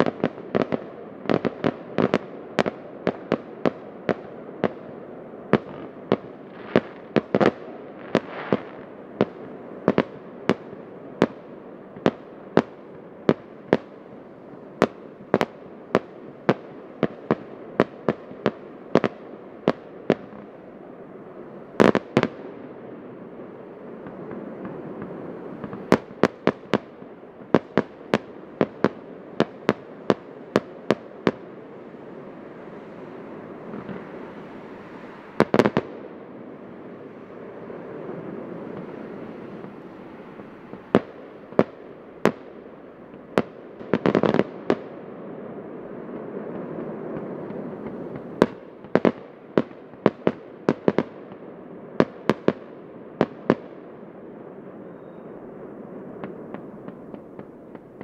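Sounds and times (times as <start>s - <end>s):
fireworks bangs: 0.0s - 14.1s, 14.8s - 20.6s, 21.7s - 51.4s
background rumble: 23.1s - 44.0s.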